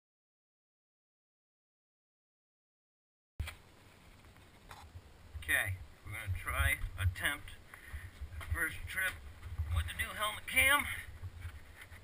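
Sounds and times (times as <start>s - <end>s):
faint low rumble and hiss: 3.4s - 12.0s.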